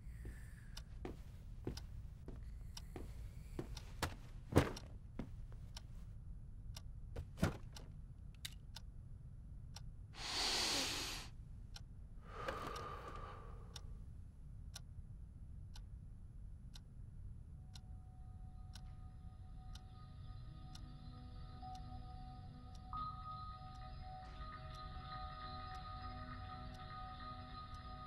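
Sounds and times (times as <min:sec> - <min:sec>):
clock ticking: 0:00.2 - 0:05.9.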